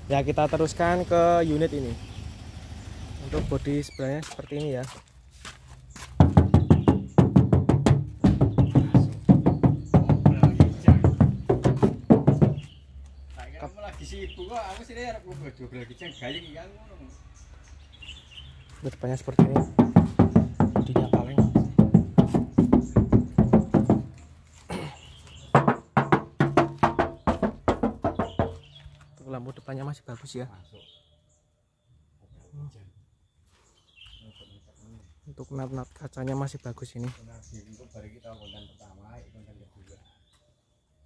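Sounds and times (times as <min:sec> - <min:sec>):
percussive background music: 0:06.2 - 0:12.6, 0:25.6 - 0:28.6
knuckles knocking on metal door: 0:06.2 - 0:12.7, 0:19.3 - 0:24.2, 0:25.5 - 0:28.7.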